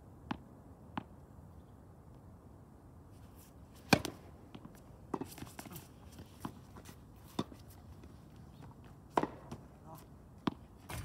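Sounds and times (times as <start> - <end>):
tennis ball knocks: 3.9 - 5.3, 9.1 - 9.6.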